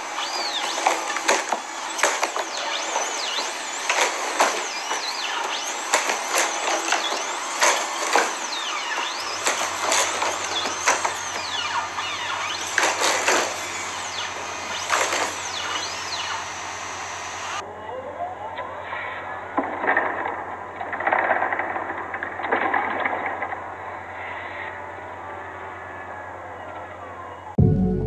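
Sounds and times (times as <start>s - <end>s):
hydraulic actuators whining: 0.0s - 17.6s.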